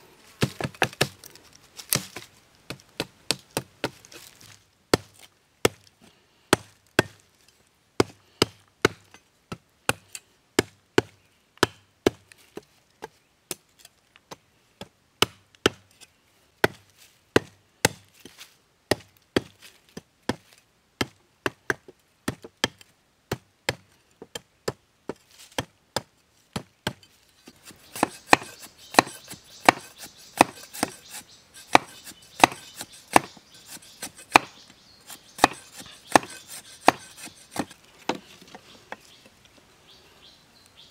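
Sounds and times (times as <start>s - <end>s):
machete chopping wood: 0.4s - 1.2s, 1.9s - 4.0s, 4.9s - 5.8s, 6.6s - 7.2s, 8.0s - 9.1s, 15.2s - 15.8s, 25.6s - 38.2s.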